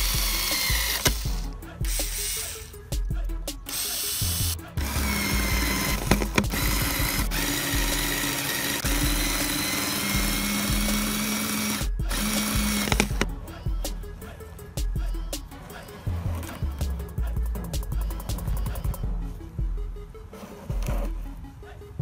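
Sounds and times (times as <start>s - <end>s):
cordless drill motor whine: 0.0s - 1.4s, 3.7s - 13.3s.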